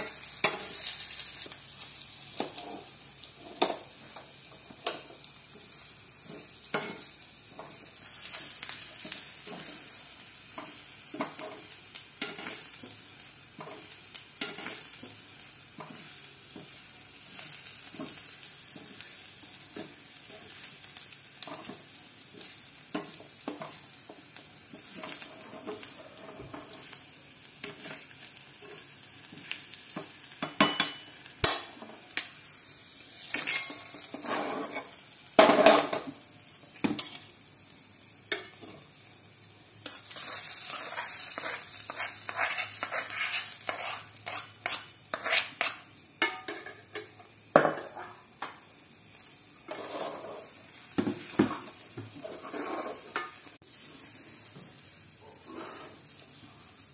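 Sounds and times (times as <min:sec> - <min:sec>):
food sizzling: 0:00.0 - 0:56.9
spoon scraping wok: 0:33.3 - 0:35.0, 0:39.8 - 0:48.5, 0:49.6 - 0:50.7, 0:51.3 - 0:53.9, 0:55.3 - 0:56.4.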